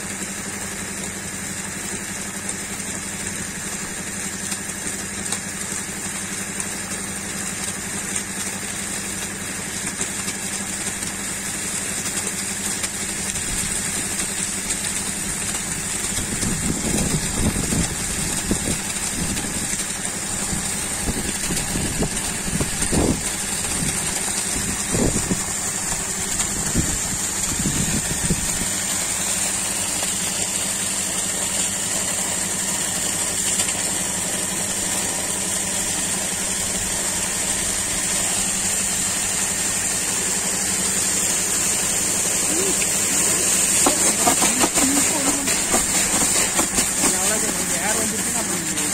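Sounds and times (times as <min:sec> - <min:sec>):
air compressor humming: 0:00.0 - 0:48.9
water gushing from a pipe: 0:00.0 - 0:48.9.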